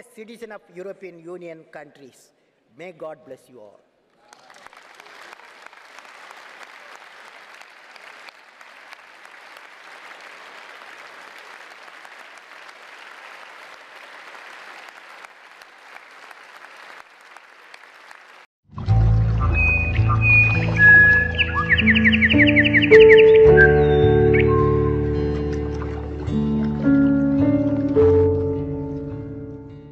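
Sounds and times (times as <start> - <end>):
large audience applauding: 4.2 - 18.5, 19.4 - 28.3.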